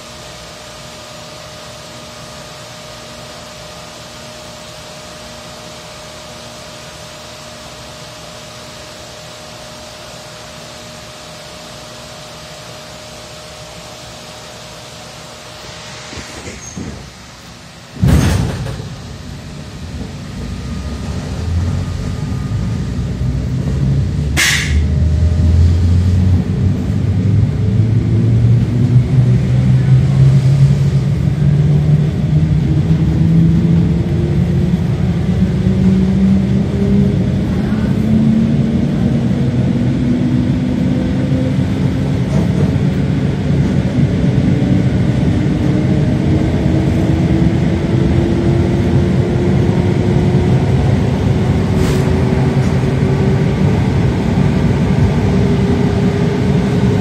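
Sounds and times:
train motors humming and rumbling: 0.0 - 57.0
loud bang: 18.0 - 19.2, 24.4 - 24.9
sharp click: 24.4 - 24.8.

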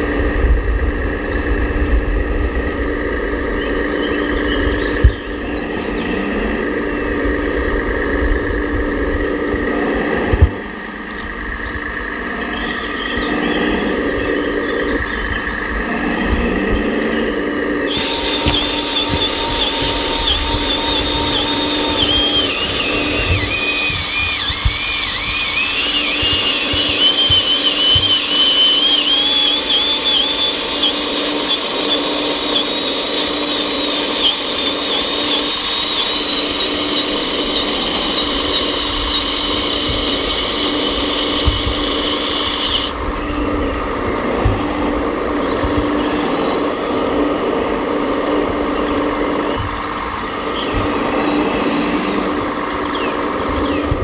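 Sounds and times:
steady hum: 0.0 - 54.0
hydraulic pump whining: 17.1 - 46.1.

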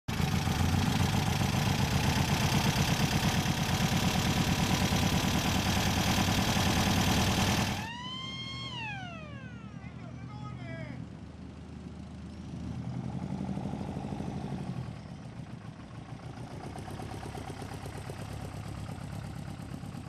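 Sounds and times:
motorcycle engine pulsing: 0.1 - 10.3.

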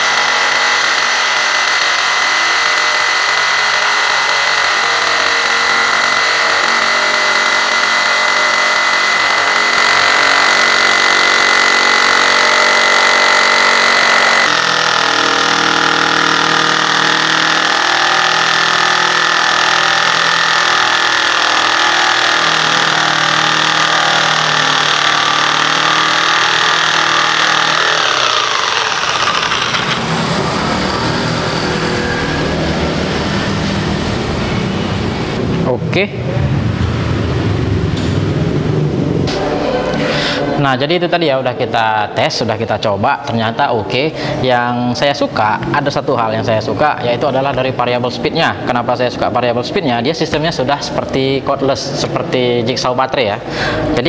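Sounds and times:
jigsaw sawing wood: 0.0 - 33.3.

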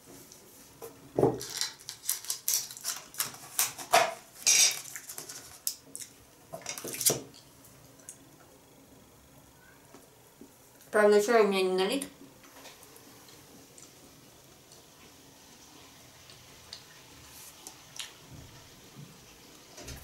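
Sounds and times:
cutlery and dishes clinking: 3.9 - 5.4.

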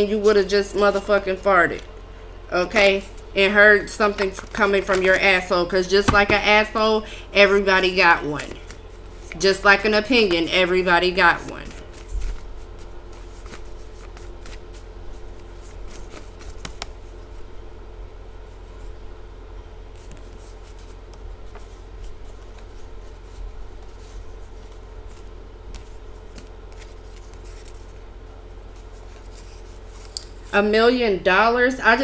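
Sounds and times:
steady low hum: 0.0 - 32.0
cards being shuffled: 4.1 - 5.4, 11.4 - 17.4, 19.9 - 28.0, 28.6 - 30.5.

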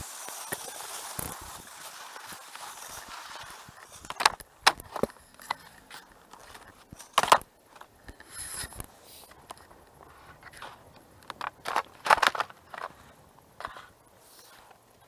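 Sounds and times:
ski boots crunching on snow: 0.0 - 7.9.

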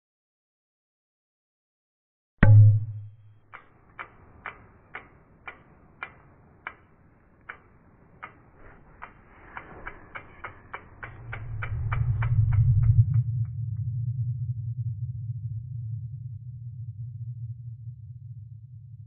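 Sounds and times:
sharp ticks: 2.4 - 13.3
low rumbling swell: 2.4 - 19.0.

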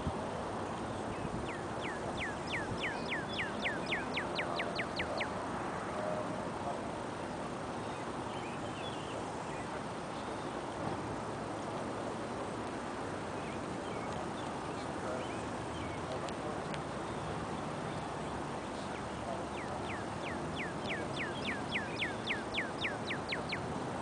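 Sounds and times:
steady wind: 0.0 - 24.0
faint bird chirps: 1.2 - 5.4, 17.0 - 23.7.

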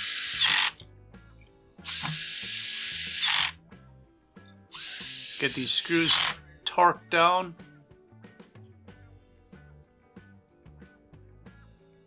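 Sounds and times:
cordless drill driving screws: 0.0 - 0.8, 1.8 - 3.6, 4.8 - 6.4.

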